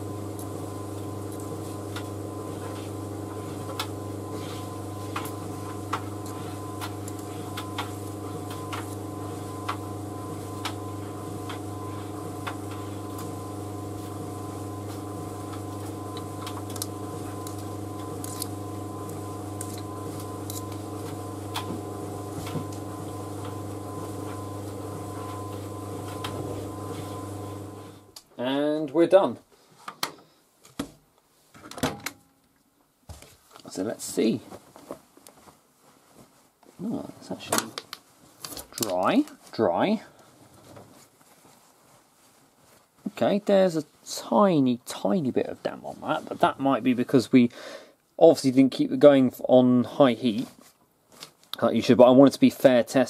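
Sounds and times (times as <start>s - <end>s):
tumble dryer motor hum: 0.0s - 28.2s.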